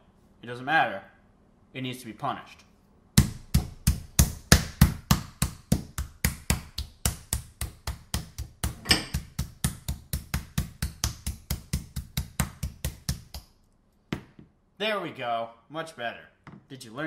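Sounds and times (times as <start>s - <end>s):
meat mallet pounding chicken: 3.2s - 13.5s.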